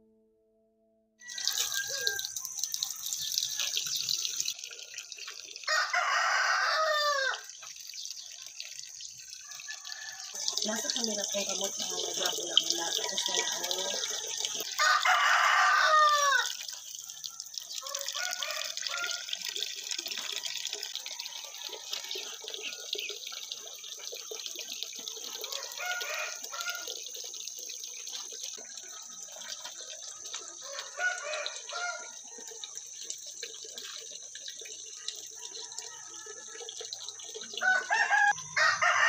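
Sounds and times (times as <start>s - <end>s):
rooster crowing: 1.2s - 4.0s, 5.6s - 7.5s, 9.5s - 10.6s, 12.8s - 16.6s, 17.8s - 19.5s, 25.5s - 26.9s, 30.6s - 32.5s, 37.6s - 39.0s
wet laundry splashing and dripping: 1.2s - 38.4s.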